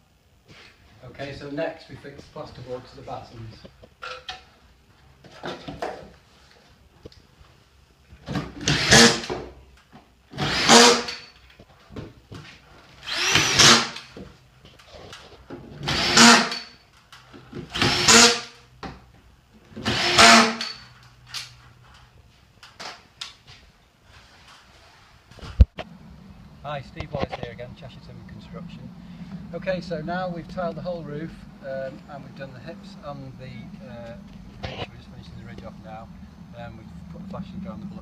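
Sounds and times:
electric drill-driver whirring: 0:08.6 - 0:09.3, 0:10.3 - 0:11.3, 0:13.0 - 0:14.1, 0:15.8 - 0:16.7, 0:17.7 - 0:18.5, 0:19.8 - 0:20.8.

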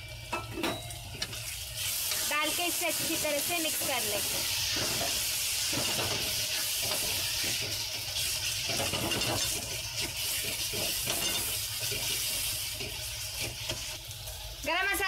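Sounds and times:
masala sizzling in a pan: 0:00.0 - 0:15.0
spatula scraping a pan: 0:01.2 - 0:14.0.

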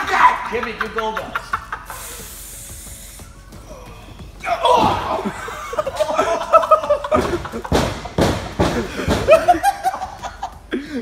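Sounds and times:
person yelling: 0:00.0 - 0:00.6, 0:04.4 - 0:05.3
men laughing: 0:00.4 - 0:02.3, 0:04.6 - 0:11.0.

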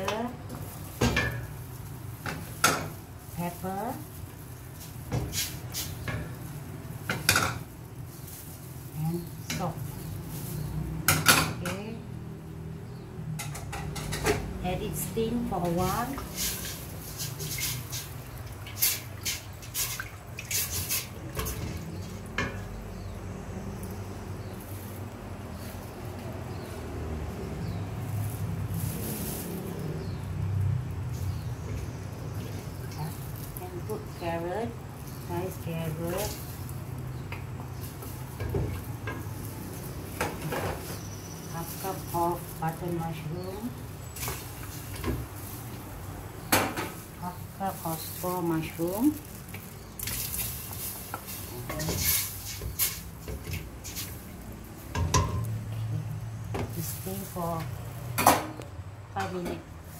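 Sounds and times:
wooden spoon stirring in a pot: 0:15.2 - 0:23.2, 0:46.9 - 0:55.8.

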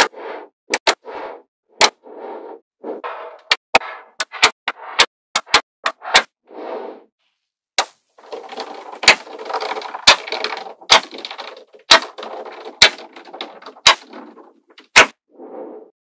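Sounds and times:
magnetic balls snapping and clattering: 0:07.8 - 0:15.2.

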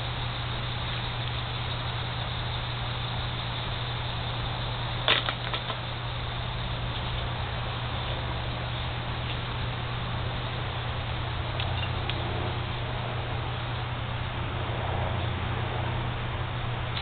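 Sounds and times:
low hum and hiss: 0:00.0 - 0:17.0
plastic hoop clattering down: 0:05.1 - 0:05.8.

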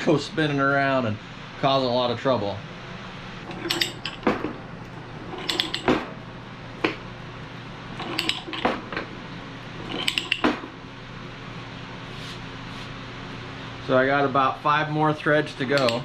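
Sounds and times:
metallic ratchet clicks: 0:05.4 - 0:05.9, 0:15.7 - 0:16.0.

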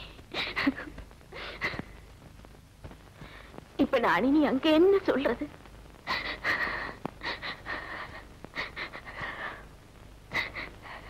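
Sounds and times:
woman sobbing: 0:00.3 - 0:02.0, 0:06.0 - 0:09.6, 0:10.3 - 0:11.0.

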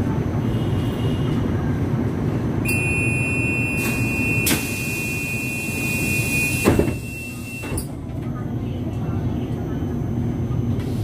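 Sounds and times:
door-warning buzzer beep: 0:02.7 - 0:07.8.

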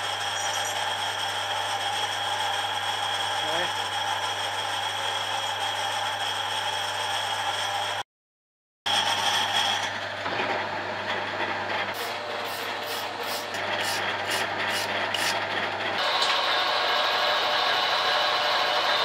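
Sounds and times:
metal lathe humming: 0:00.0 - 0:08.0, 0:11.0 - 0:19.0
harsh machining sound: 0:12.0 - 0:19.0.

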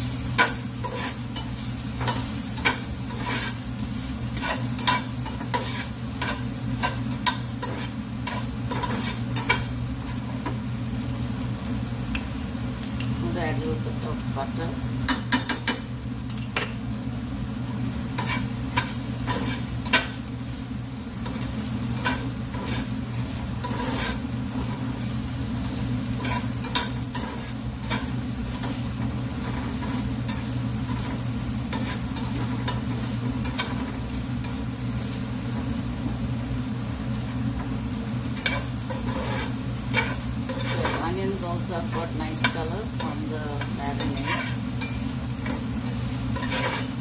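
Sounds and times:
onions sizzling in frying pan: 0:00.0 - 0:47.0
steady low hum: 0:00.0 - 0:47.0
spatula scraping a pan: 0:00.3 - 0:10.6, 0:18.1 - 0:20.2, 0:21.2 - 0:25.1, 0:26.1 - 0:35.2, 0:38.3 - 0:47.0.

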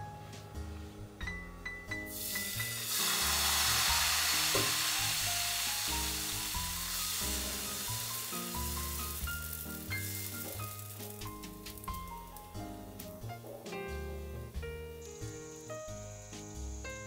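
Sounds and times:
soft background music: 0:00.0 - 0:17.0
batter sizzling in a pan: 0:02.1 - 0:13.1.

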